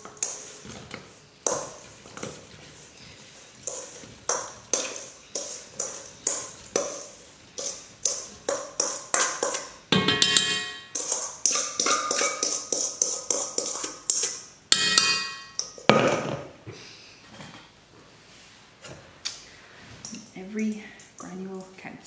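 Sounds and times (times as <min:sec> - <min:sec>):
utensil scraping a steel bowl: 0:00.0 - 0:15.5
steel bowl ringing: 0:10.0 - 0:11.0, 0:14.7 - 0:15.6.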